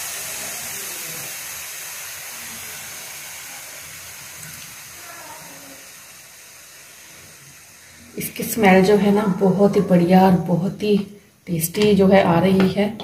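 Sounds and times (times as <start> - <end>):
steam hissing from pressure cooker: 0.0 - 10.6.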